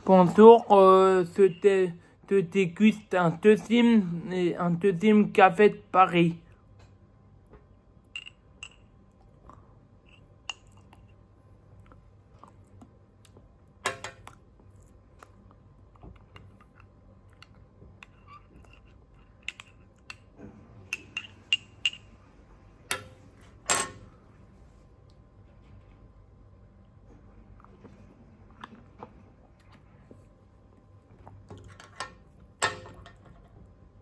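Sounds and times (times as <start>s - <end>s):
spoon clinking in a mug: 8.1s - 8.9s.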